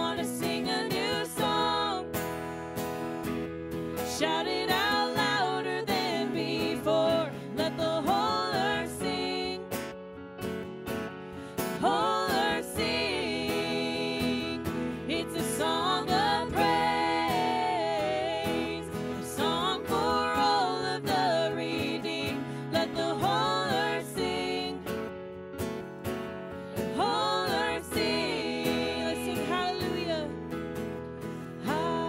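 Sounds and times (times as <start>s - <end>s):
woman singing: 0.0s - 2.2s, 4.0s - 9.8s, 11.7s - 25.1s, 26.9s - 30.4s, 31.6s - 32.0s
acoustic guitar: 0.0s - 32.0s
keyboard: 0.0s - 32.0s.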